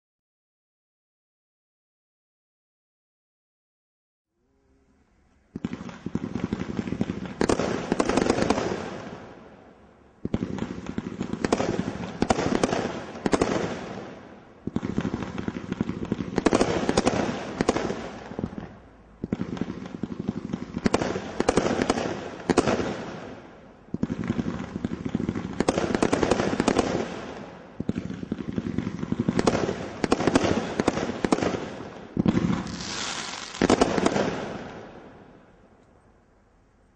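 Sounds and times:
roman candle firing shots: 0:10.3 - 0:18.6, 0:24.0 - 0:35.2.

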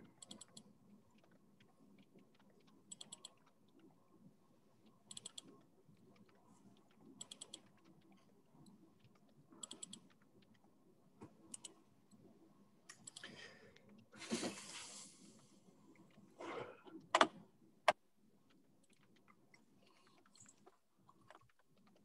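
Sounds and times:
computer keyboard typing: 0:00.0 - 0:03.9, 0:04.8 - 0:10.7, 0:11.4 - 0:11.8, 0:12.9 - 0:13.4.

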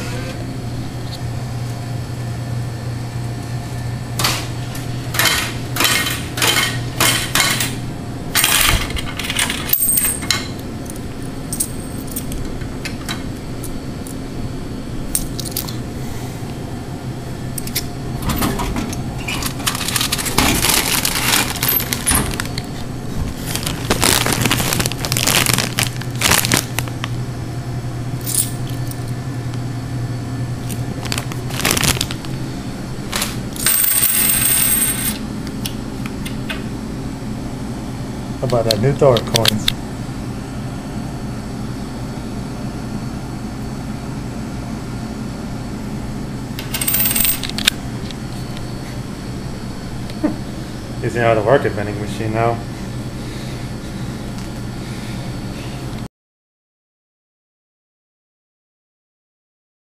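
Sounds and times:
vending machine low hum: 0:00.0 - 0:56.1
coins dropping into coin slot: 0:08.4 - 0:10.4, 0:33.6 - 0:35.2, 0:46.6 - 0:47.6
coins clinking in a hand: 0:33.6 - 0:35.2, 0:46.7 - 0:47.5.

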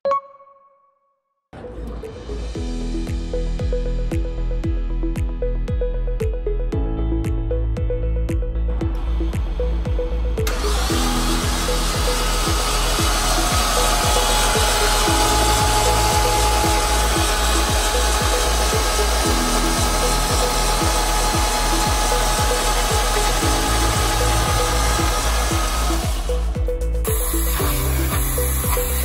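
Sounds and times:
music with steady beat: 0:01.6 - 0:29.0
starter motor cranking engine: 0:10.4 - 0:29.0.

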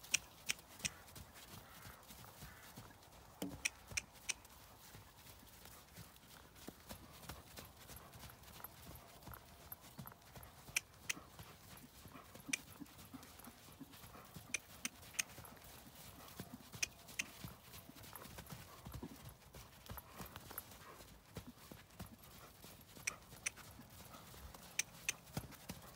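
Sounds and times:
sharp clicks: 0:00.0 - 0:01.0, 0:03.4 - 0:04.4, 0:16.7 - 0:17.4, 0:24.7 - 0:25.3
hooves trotting on sand: 0:00.0 - 0:25.9.

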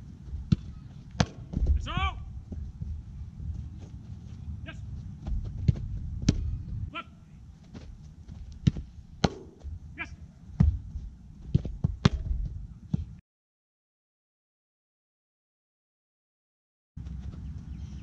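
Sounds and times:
wind buffeting microphone: 0:00.0 - 0:06.9
soccer ball thuds: 0:00.2 - 0:04.0, 0:05.0 - 0:06.6, 0:07.6 - 0:09.8, 0:10.5 - 0:13.2.

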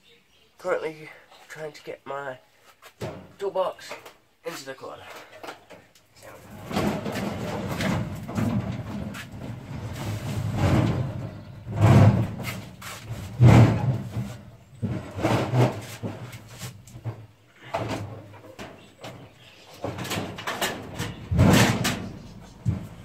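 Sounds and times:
metal toolbox scraping: 0:06.3 - 0:16.8
loud knocks: 0:10.4 - 0:16.4, 0:19.8 - 0:23.0.

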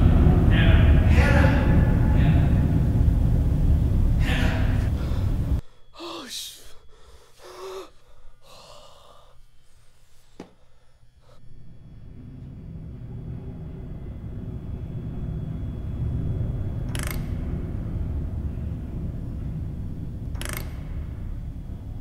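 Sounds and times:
low rumble: 0:00.0 - 0:05.9, 0:11.4 - 0:22.0.

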